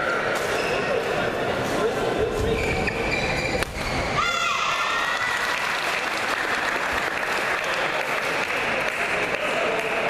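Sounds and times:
shoe squeak on court floor: 0.3s - 1.2s, 2.3s - 4.2s
spectators clapping: 5.0s - 10.0s.

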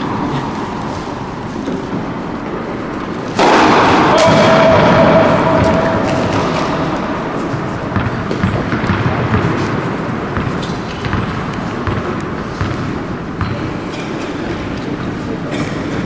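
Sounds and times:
indoor tennis hall din: 0.0s - 16.0s
tennis ball bouncing on hard court: 5.4s - 9.8s, 10.4s - 13.6s.

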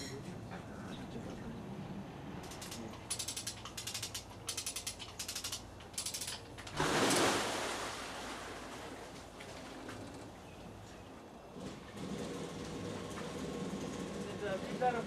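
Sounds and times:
ratchet-like mechanical clicking: 2.4s - 6.8s
water rushing and splashing: 6.7s - 9.4s.

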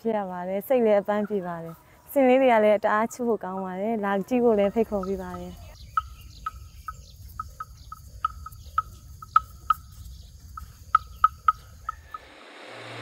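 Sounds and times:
short chirping calls: 4.5s - 12.3s
high insect drone: 5.0s - 13.0s.

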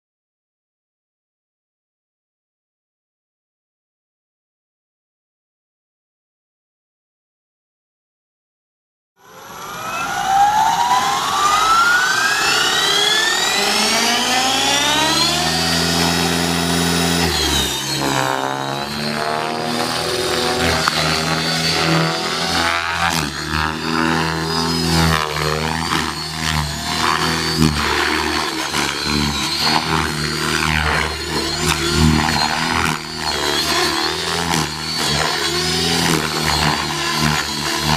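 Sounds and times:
rc helicopter motor whine: 9.2s - 37.9s.

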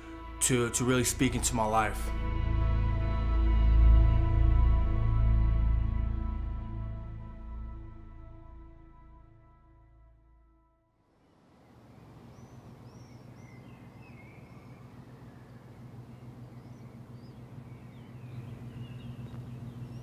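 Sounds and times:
steady low hum: 0.0s - 9.5s, 11.1s - 20.0s
small birds chirping: 11.5s - 20.0s.

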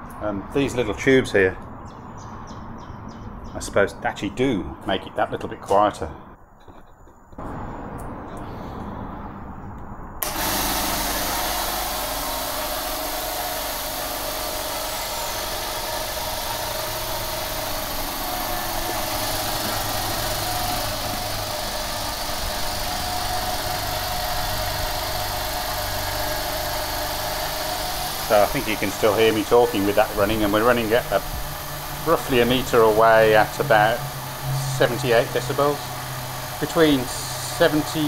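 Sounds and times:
air compressor running: 10.2s - 38.0s.

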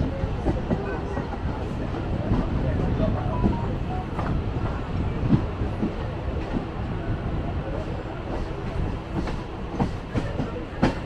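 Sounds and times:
train rumble: 0.0s - 11.0s
train sharp clacks: 7.7s - 11.0s.

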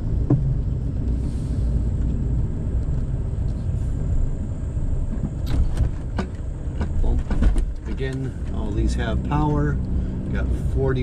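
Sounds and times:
engine and tyres rumbling: 0.0s - 11.0s.

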